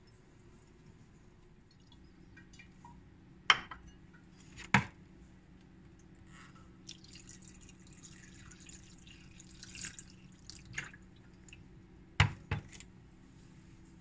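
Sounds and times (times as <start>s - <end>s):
water pouring into a bowl: 6.8s - 11.6s
water splashing and dripping: 6.8s - 11.6s.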